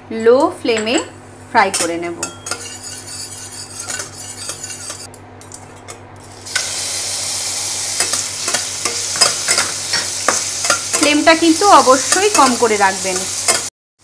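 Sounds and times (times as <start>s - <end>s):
spatula scraping a steel pan: 2.2s - 5.1s
prawns sizzling in hot oil: 6.2s - 13.7s
spatula clacking against pan: 8.0s - 11.2s.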